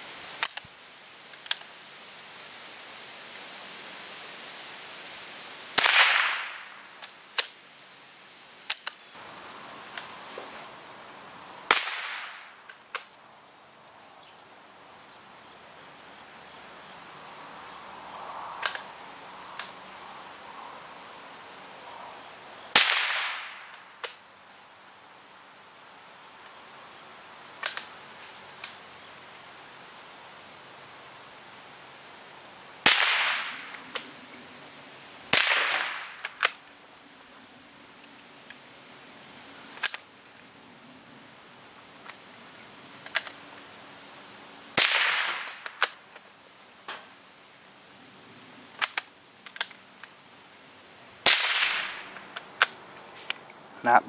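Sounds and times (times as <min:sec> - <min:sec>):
rifle shots cracking: 0:05.8 - 0:06.7, 0:11.7 - 0:12.5, 0:22.7 - 0:24.2, 0:32.9 - 0:33.7, 0:35.3 - 0:36.6, 0:44.8 - 0:46.0, 0:51.2 - 0:52.1.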